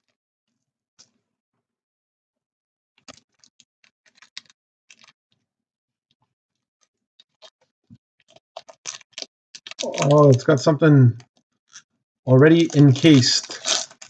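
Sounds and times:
card box crinkly clicks: 12.4s - 14.0s.

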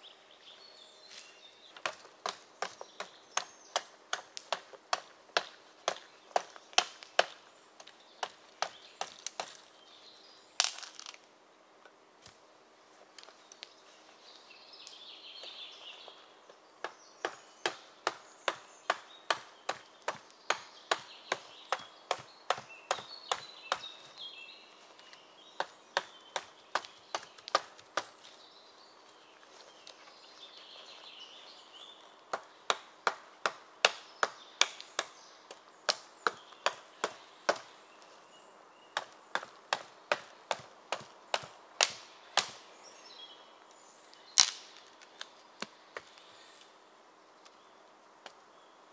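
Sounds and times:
hatchet chopping wood: 1.8s - 9.6s, 16.8s - 24.0s, 25.6s - 28.2s, 32.3s - 37.7s, 39.0s - 42.6s.

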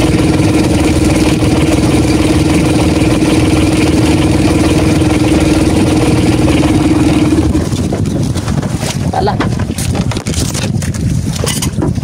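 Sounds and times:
boat engine droning: 0.0s - 10.6s.

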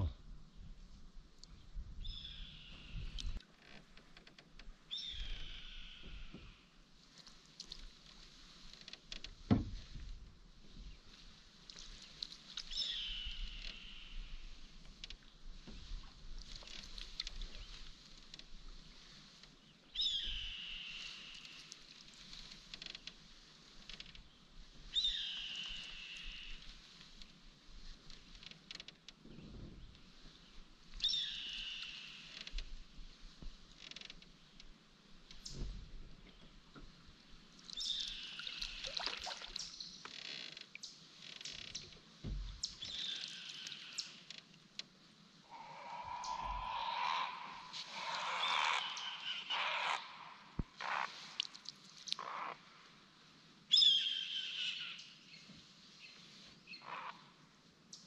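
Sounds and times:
low thump of paddle: 9.5s - 10.0s, 42.2s - 42.6s
paddle gurgling in water: 37.9s - 39.7s
bird whistling call: 53.7s - 55.0s.

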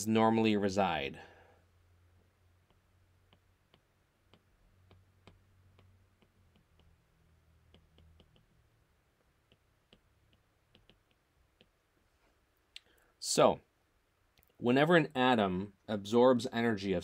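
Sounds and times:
faint low hum: 0.0s - 17.0s
stylus tapping on glass screen: 2.6s - 7.0s, 7.6s - 8.6s, 9.2s - 11.8s.

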